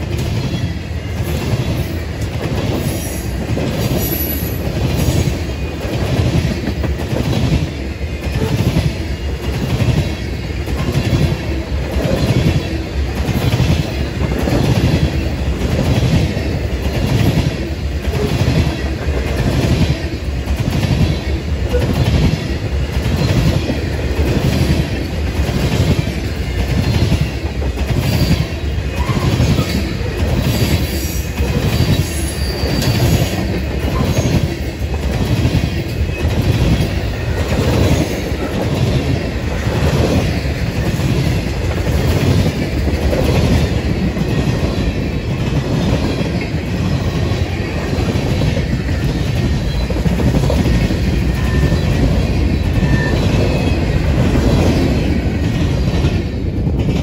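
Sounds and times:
freight train rumbling past: 0.0 - 57.0
wheel squeal: 31.6 - 33.3, 52.6 - 53.8.

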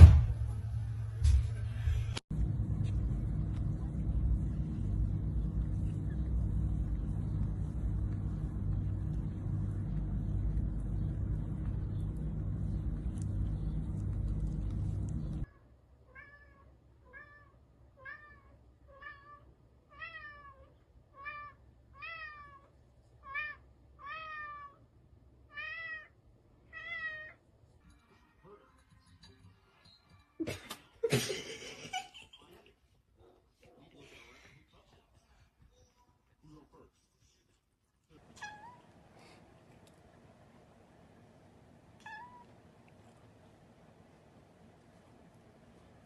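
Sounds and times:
loud low humming noise: 0.0 - 15.5
cat meowing: 15.5 - 24.8, 25.5 - 27.4, 38.3 - 39.0, 42.0 - 42.6.

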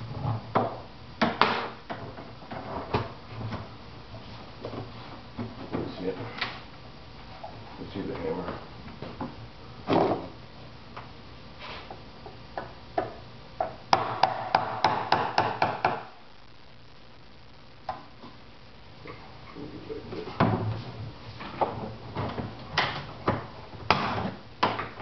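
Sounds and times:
hammer tapping on fiberglass: 12.6 - 16.1.

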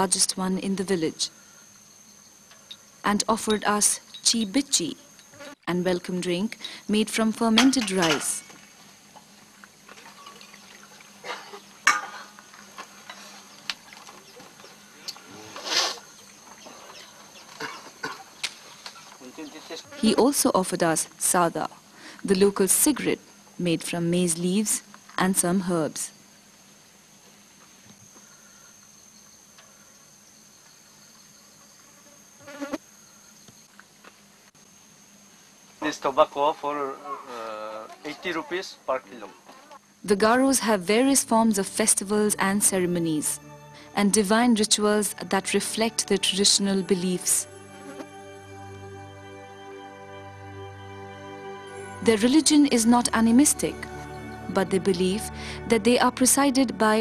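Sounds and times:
high-pitched insect drone: 0.0 - 33.8, 34.5 - 57.0
liquid pouring and splashing: 9.9 - 11.2
mugs clinking: 11.3 - 12.3.

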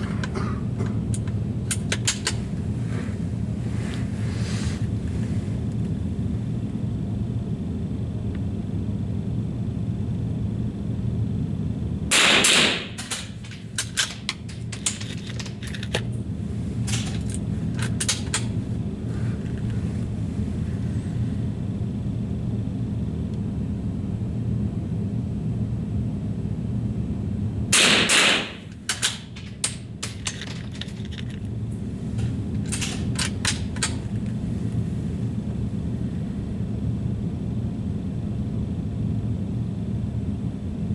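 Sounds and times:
rifle shots: 12.1 - 13.3, 27.8 - 28.6.

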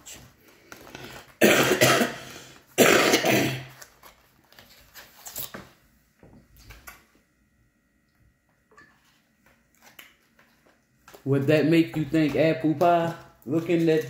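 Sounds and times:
woman coughing: 1.4 - 3.7.

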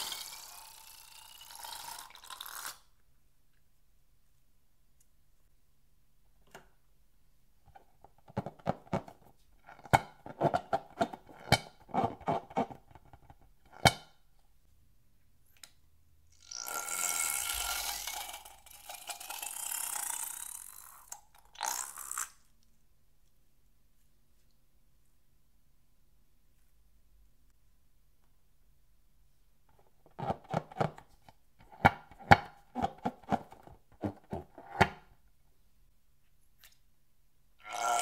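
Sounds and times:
rubber balloons squeaking: 32.7 - 34.8.

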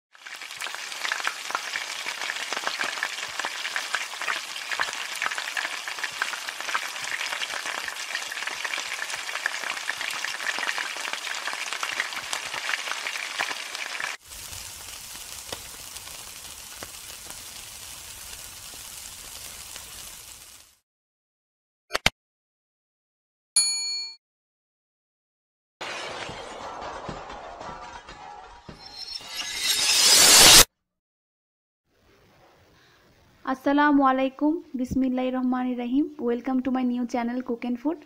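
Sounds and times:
food sizzling in hot oil: 0.1 - 20.8, 28.8 - 30.7.

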